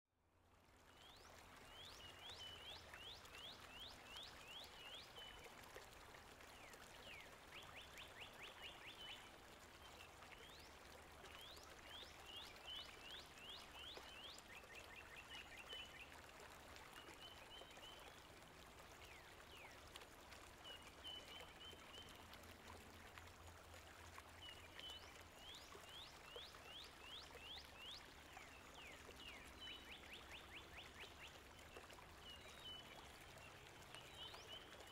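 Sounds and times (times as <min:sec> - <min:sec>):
songbirds singing: 0:24.3 - 0:34.9.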